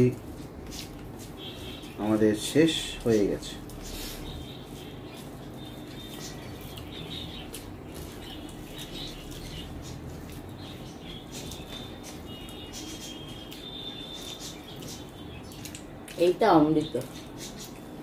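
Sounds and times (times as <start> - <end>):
wet chewing sounds: 3.6 - 16.4.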